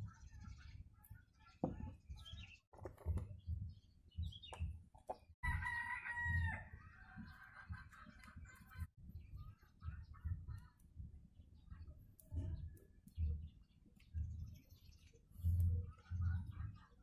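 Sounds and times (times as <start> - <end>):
rooster crowing: 5.4 - 7.2.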